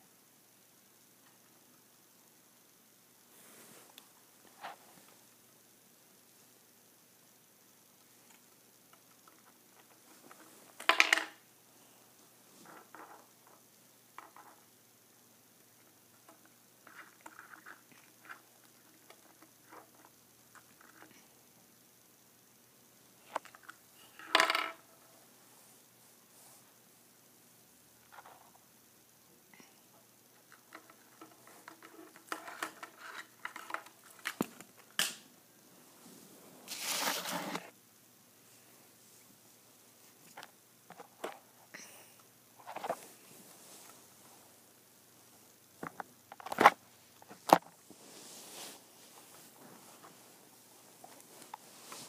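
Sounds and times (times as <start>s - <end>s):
rustle: 3.2s - 5.5s, 42.6s - 45.8s, 46.6s - 52.0s
bird pecking plastic toys: 30.5s - 34.6s.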